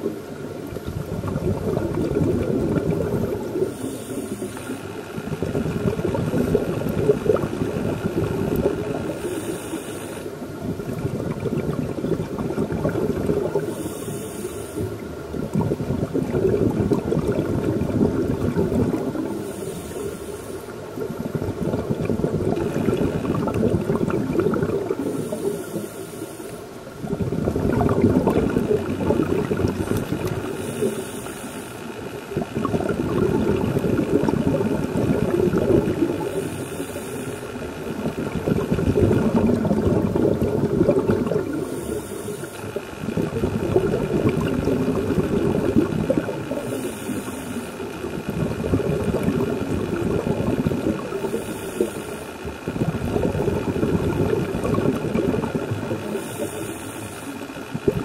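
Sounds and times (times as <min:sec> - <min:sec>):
bubbling exhalations underwater: 0:00.0 - 0:09.4, 0:10.5 - 0:13.8, 0:14.9 - 0:19.5, 0:21.0 - 0:25.7, 0:27.0 - 0:31.0, 0:32.2 - 0:37.1, 0:37.8 - 0:56.8, 0:57.6 - 0:58.0
regulator inhalation hiss: 0:03.4 - 0:05.2, 0:09.1 - 0:10.4, 0:13.6 - 0:15.1, 0:19.2 - 0:20.9, 0:25.0 - 0:26.8, 0:30.4 - 0:32.2, 0:36.2 - 0:38.1, 0:41.4 - 0:43.0, 0:46.5 - 0:48.0, 0:51.2 - 0:52.5, 0:56.0 - 0:57.8.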